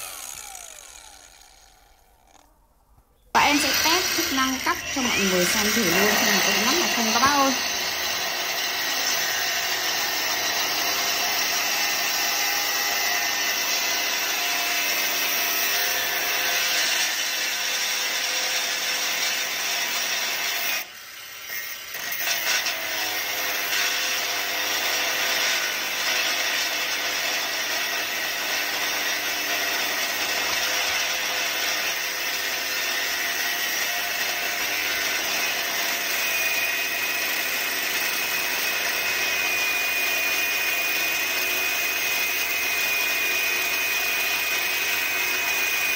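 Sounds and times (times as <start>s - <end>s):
angle grinder cutting steel: 0.0s - 2.6s, 3.4s - 45.9s.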